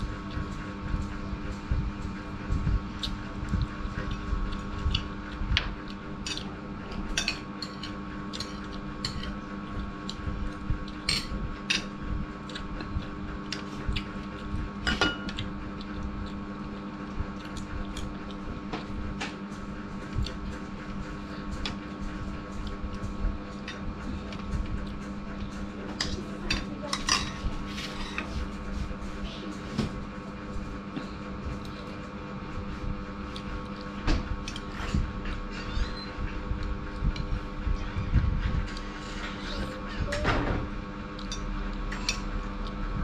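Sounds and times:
steady hum: 0.0 - 43.0
cutlery clinking against a bowl: 6.2 - 6.5, 7.1 - 9.4, 14.8 - 15.5, 26.0 - 28.3, 41.2 - 42.3
chewing: 12.4 - 14.6, 15.3 - 18.5.

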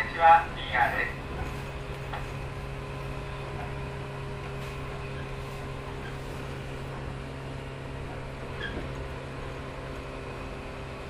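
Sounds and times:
train motor hum: 0.0 - 11.0
wheel and rail noise: 0.0 - 11.0.

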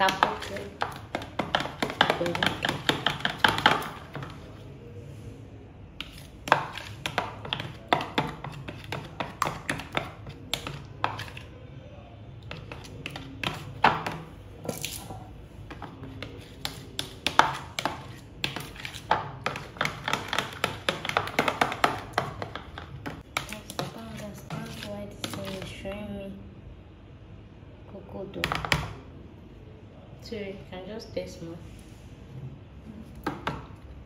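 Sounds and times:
spoon tapping plastic bowl: 0.0 - 4.5, 6.5 - 11.4, 12.4 - 14.9, 15.7 - 25.7.

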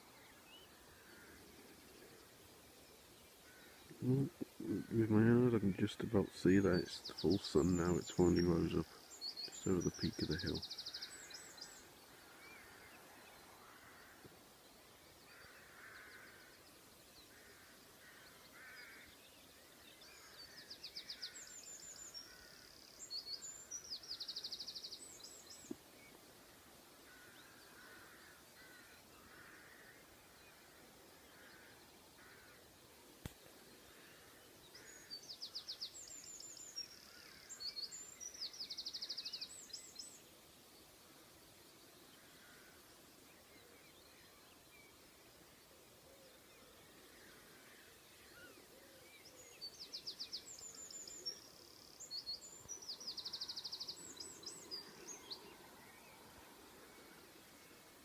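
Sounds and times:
distant crows cawing: 0.8 - 1.8, 3.4 - 5.2, 12.2 - 14.5, 15.3 - 16.6, 17.3 - 19.2, 20.0 - 21.6, 22.2 - 22.8, 27.0 - 32.8, 33.8 - 35.3, 42.2 - 42.9.

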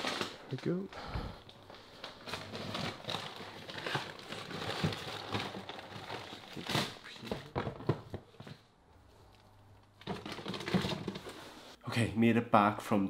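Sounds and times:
paper bags rustling: 0.0 - 8.5.

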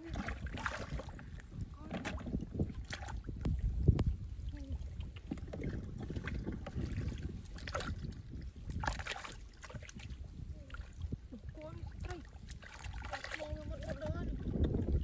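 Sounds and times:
hands splashing in muddy water: 0.0 - 1.2, 5.8 - 10.1, 12.0 - 14.0
wet splats and drips: 12.0 - 14.0.

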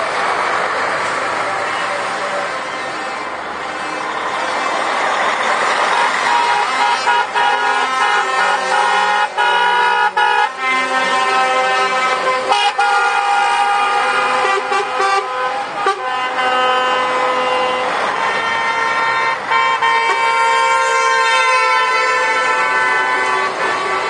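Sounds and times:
diesel engines running: 0.0 - 24.0
lorry horns blasting: 5.6 - 24.0.

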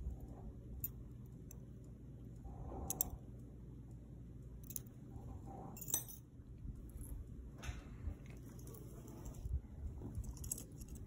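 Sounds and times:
earrings clicking: 2.9 - 3.1.

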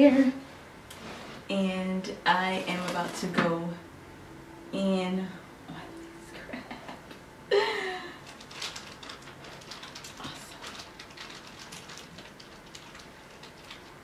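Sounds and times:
crab shell crackling: 8.2 - 14.0.

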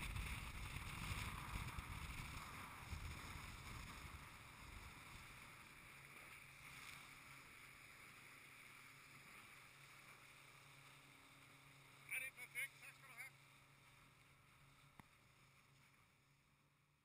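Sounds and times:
water and wind rushing: 0.0 - 16.7.

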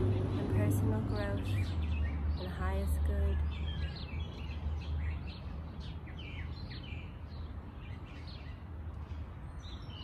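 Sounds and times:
songbirds chirping: 0.0 - 10.0.

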